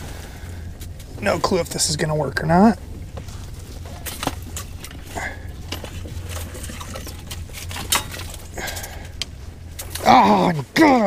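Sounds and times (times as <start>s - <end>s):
steady low hum: 0.0s - 11.0s
fishing gear clicking and knocking: 0.7s - 10.3s.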